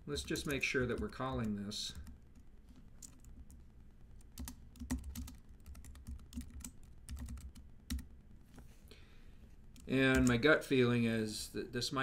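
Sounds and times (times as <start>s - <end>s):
keyboard typing: 0.2s - 3.6s, 4.2s - 8.1s, 9.7s - 10.4s.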